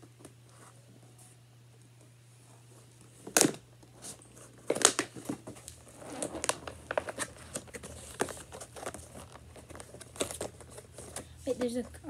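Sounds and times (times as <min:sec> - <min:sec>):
plastic packaging crackling: 0:03.2 - 0:12.0.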